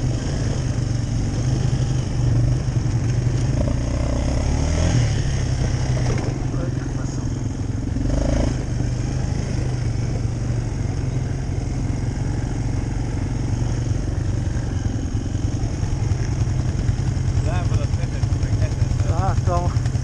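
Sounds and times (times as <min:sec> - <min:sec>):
quad bike engine running: 0:00.0 - 0:20.0.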